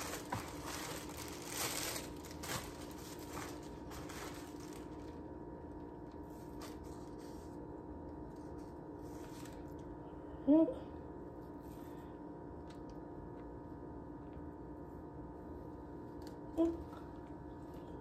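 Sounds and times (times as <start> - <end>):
plastic bag crinkling: 0.0 - 5.8
faint steady hum: 0.0 - 18.0.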